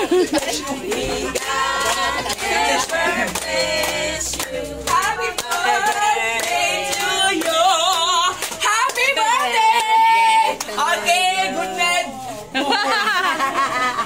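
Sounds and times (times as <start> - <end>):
group singing: 0.0 - 13.4
handclapping: 0.4 - 10.0.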